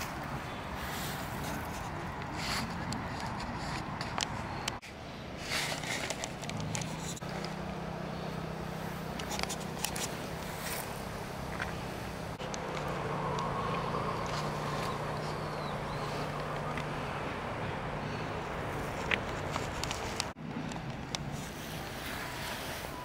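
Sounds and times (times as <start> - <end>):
clicks and rustles: 1.0 - 7.8, 9.0 - 11.8, 18.5 - 22.2.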